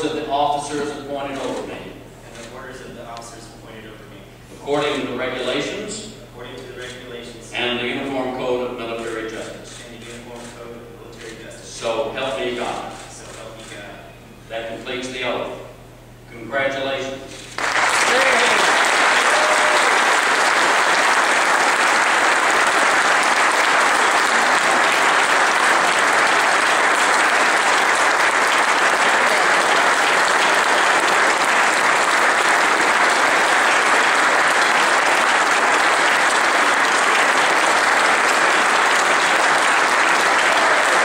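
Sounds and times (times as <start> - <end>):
crowd applauding: 17.5 - 41.0.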